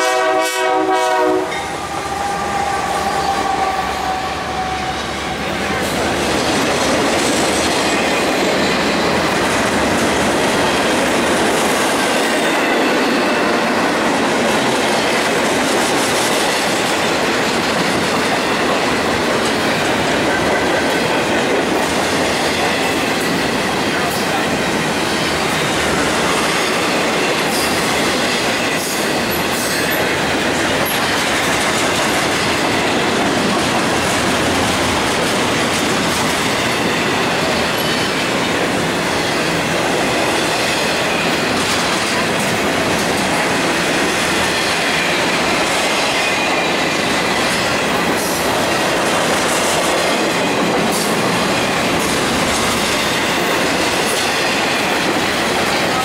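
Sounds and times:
train wheels rumbling on rails: 0.0 - 56.0
high wheel squeal: 1.5 - 5.6.

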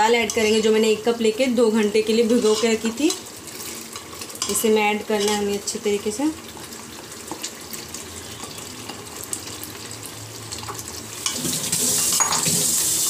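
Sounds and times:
metal spoon scraping glass bowl: 2.3 - 2.8.

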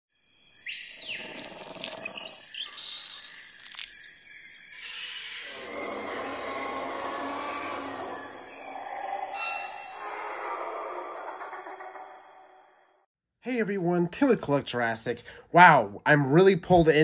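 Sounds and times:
chirps and clicks: 0.6 - 12.7
bird call: 4.8 - 12.4.

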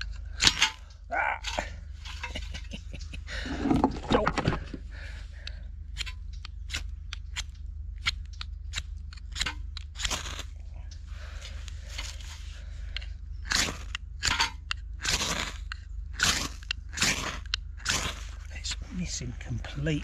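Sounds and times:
knife scraping ferrocerium rod: 6.0 - 10.5, 13.4 - 18.4.

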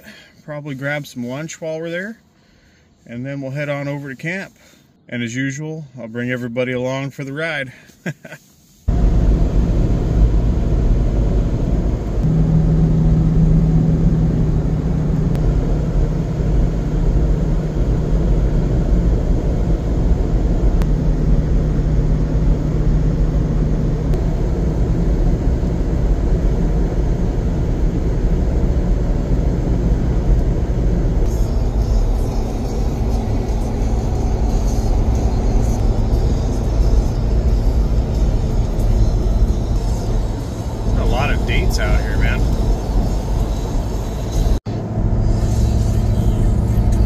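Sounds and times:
road and engine rumble: 7.6 - 47.0
low hum: 8.9 - 47.0.

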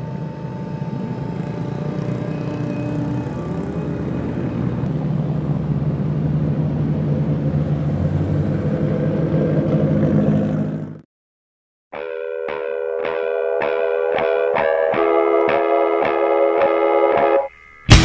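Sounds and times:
car engines running: 0.0 - 11.0.

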